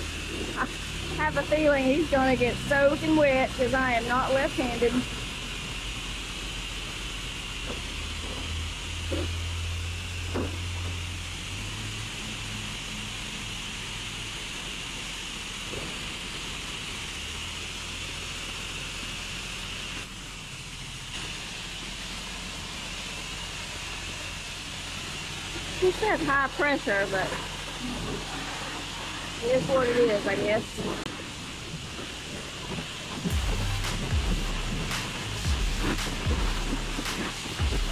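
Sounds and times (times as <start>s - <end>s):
low hum: 0.0s - 15.1s, 20.0s - 37.9s
pressure washer spraying water: 0.0s - 37.9s.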